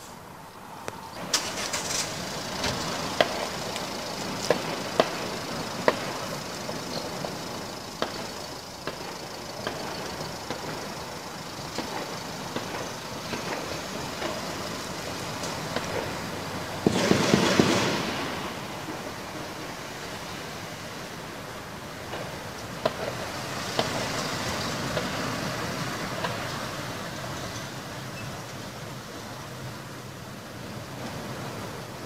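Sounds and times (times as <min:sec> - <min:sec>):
steady background noise: 0:00.0 - 0:32.0
gunshots: 0:16.8 - 0:18.9.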